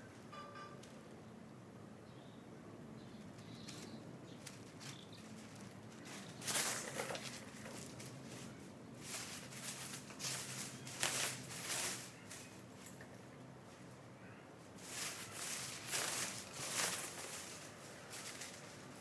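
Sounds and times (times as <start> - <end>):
plastic sheet rustling: 4.6 - 12.6, 14.8 - 19.0.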